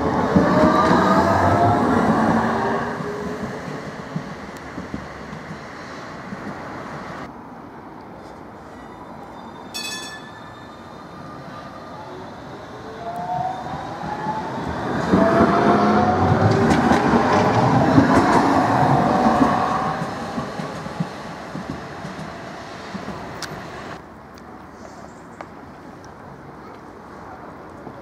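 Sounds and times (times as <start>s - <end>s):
rumble of tram wheels: 13.2s - 24.0s.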